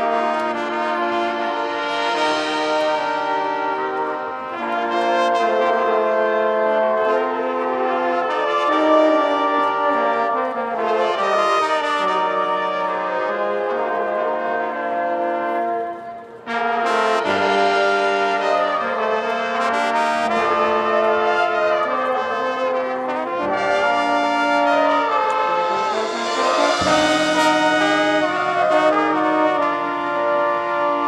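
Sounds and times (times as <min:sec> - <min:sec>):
brass section playing chords: 0:00.0 - 0:31.0
sharp percussion hits: 0:23.4 - 0:30.2.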